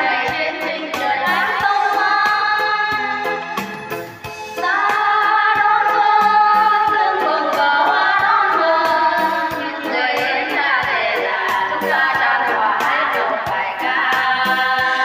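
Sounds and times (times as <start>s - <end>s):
women singing together: 0.0s - 3.4s, 4.6s - 15.0s
instrumental accompaniment with beat: 0.0s - 15.0s.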